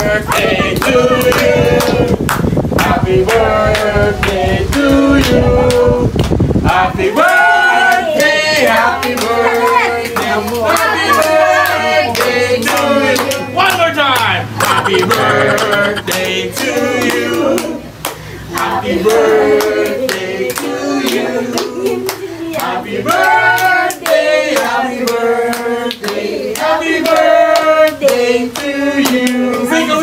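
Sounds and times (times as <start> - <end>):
group singing: 0.0 - 30.0
hand claps: 0.3 - 4.4.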